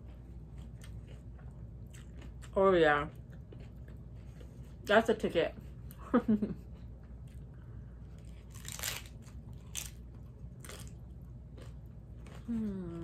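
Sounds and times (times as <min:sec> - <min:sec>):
crunching of hard taco being chewed: 0:00.1 - 0:04.6, 0:08.1 - 0:13.0.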